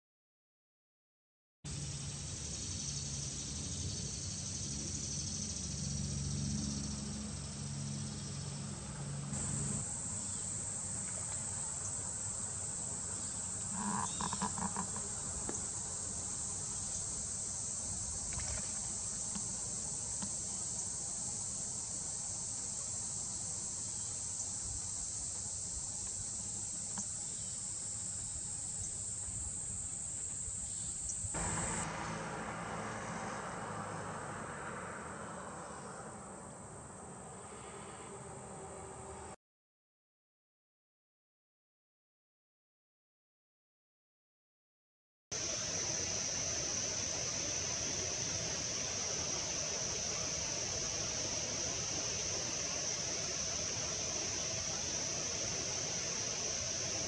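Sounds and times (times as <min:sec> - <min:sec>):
insects trilling: 0:01.7 - 0:39.3, 0:45.4 - 0:57.0
rapidly pulsed call: 0:13.0 - 0:17.3.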